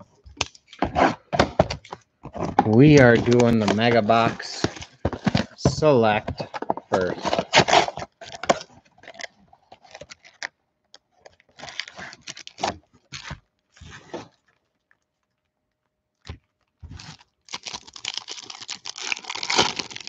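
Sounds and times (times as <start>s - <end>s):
cardboard box tearing: 0.8s - 5.6s, 6.6s - 8.7s, 17.0s - 20.0s
foil packs rustling and crinkling: 0.8s - 10.5s, 11.4s - 14.8s, 16.7s - 20.0s.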